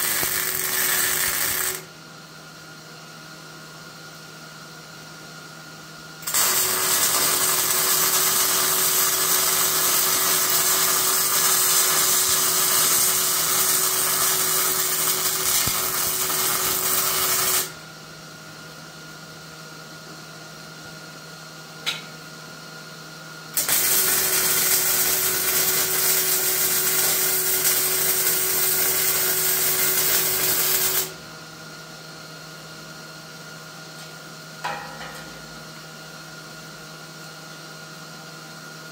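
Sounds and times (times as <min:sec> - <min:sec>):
arc welding crackling: 0:00.0 - 0:01.9, 0:06.2 - 0:17.8, 0:23.6 - 0:31.2.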